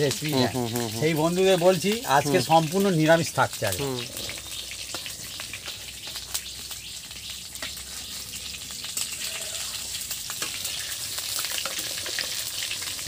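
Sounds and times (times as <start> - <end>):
slices frying in hot oil: 0.0 - 13.0.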